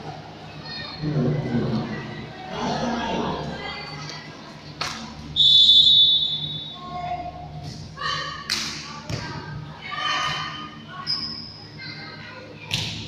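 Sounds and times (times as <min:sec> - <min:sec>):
referee's whistle blast: 0:05.4 - 0:06.8.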